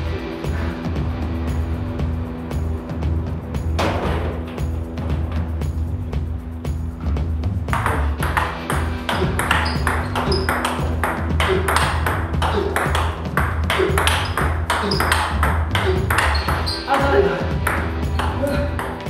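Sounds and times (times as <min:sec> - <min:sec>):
table tennis ball clicks: 0:07.8 - 0:13.1, 0:13.7 - 0:16.7.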